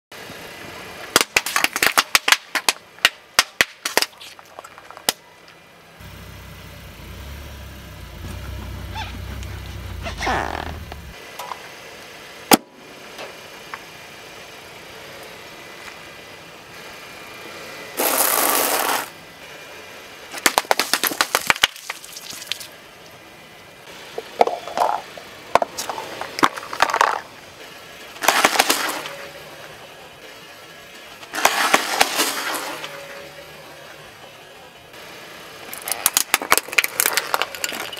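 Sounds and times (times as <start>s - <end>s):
car tyre crushing objects: 1.0s - 5.3s, 18.0s - 19.1s, 20.3s - 22.8s, 24.1s - 27.4s, 28.1s - 29.3s, 31.2s - 33.2s, 35.7s - 37.9s
eggs cracking under a tyre: 1.2s - 5.2s, 20.4s - 22.7s, 24.2s - 27.3s, 35.7s - 37.9s.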